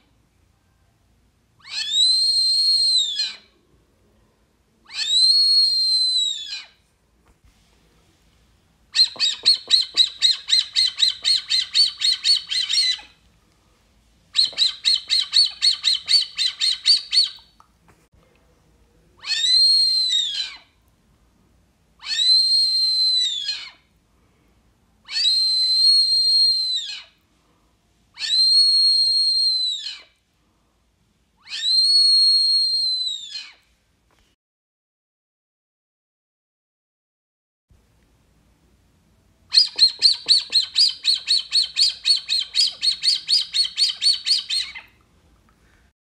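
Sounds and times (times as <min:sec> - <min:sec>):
duck whistle calls: 0:39.5 - 0:44.8.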